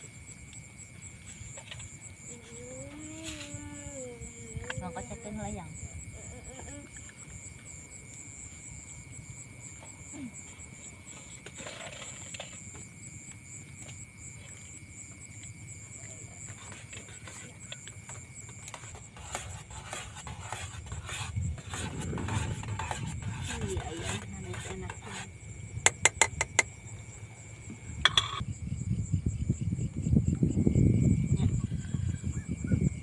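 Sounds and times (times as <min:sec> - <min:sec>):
wind buffeting microphone: 0:20.4 - 0:25.0, 0:27.7 - 0:33.0.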